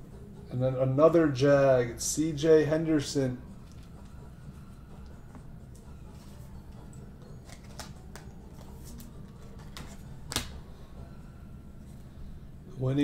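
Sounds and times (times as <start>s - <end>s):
steady low hum: 0.0s - 13.0s
trading cards clicking and snapping: 7.4s - 10.6s.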